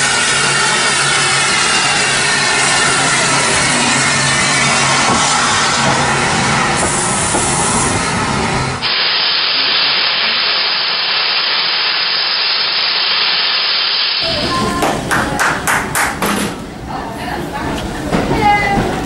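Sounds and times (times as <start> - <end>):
steam hissing from locomotives: 0.0 - 14.8.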